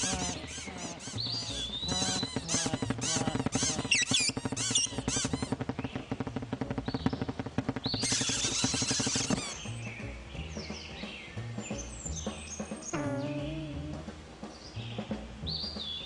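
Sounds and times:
cartoon bird chatter: 0.0s - 5.6s, 7.9s - 9.6s
cartoon music with quick beat: 0.0s - 14.2s.

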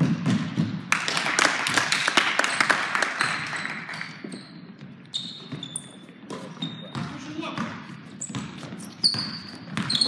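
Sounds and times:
basketball bouncing: 0.0s - 0.9s, 4.2s - 10.0s
shoes squeaking on court: 3.3s - 10.0s.

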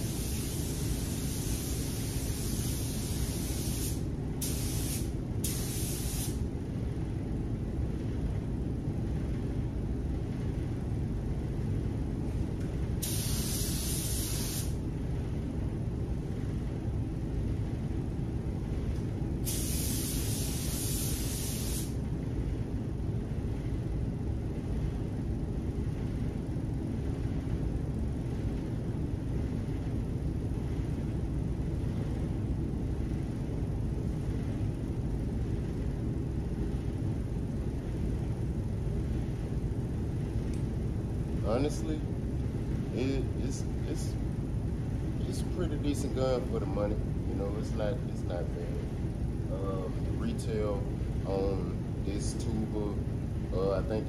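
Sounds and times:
paint spray gun hissing: 0.0s - 6.4s, 13.0s - 14.8s, 19.4s - 22.0s
steady low background noise: 0.0s - 54.0s.

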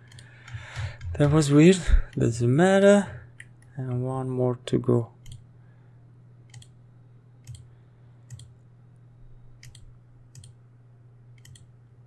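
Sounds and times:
computer mouse clicks: 0.0s - 1.4s, 5.2s - 5.5s, 6.5s - 6.8s, 7.4s - 8.6s, 9.6s - 10.6s, 11.4s - 11.7s.

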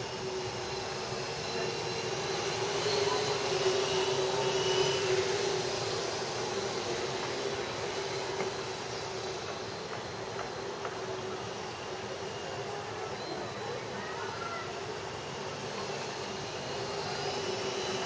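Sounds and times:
drone propellers buzzing: 0.0s - 10.3s.

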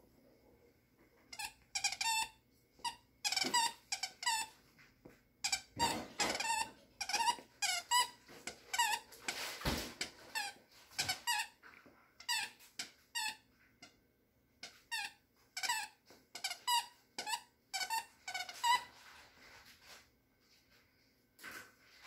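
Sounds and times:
squeaky toy squeaking: 1.3s - 4.5s, 5.4s - 9.4s, 10.0s - 11.6s, 12.2s - 13.4s, 14.6s - 19.0s.

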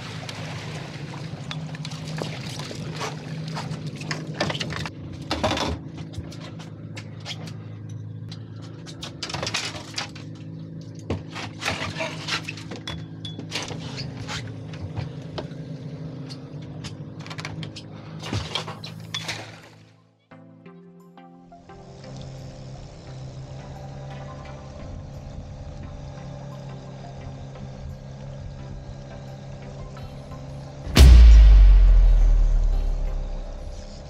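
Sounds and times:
boat engine humming: 0.0s - 5.2s.

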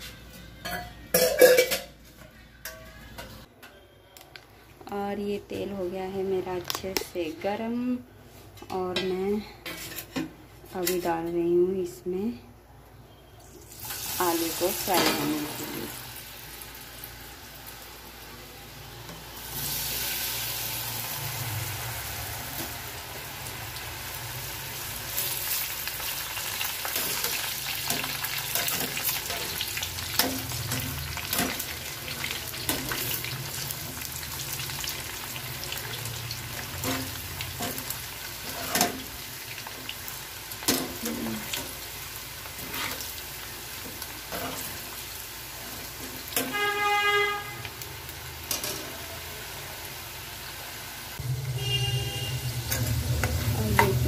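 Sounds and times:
food deep-frying in hot oil: 13.4s - 54.0s.

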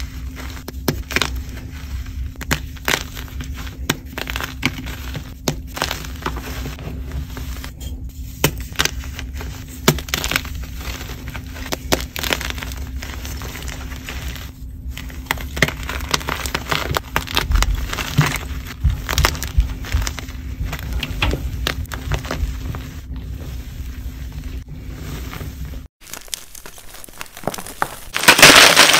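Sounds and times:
chalk crunching and crackling: 0.0s - 28.9s
crumbs pouring through fingers: 26.0s - 28.9s.

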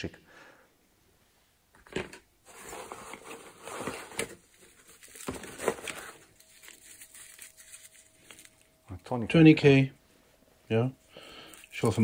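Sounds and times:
fabric bag rustling: 2.5s - 8.8s.

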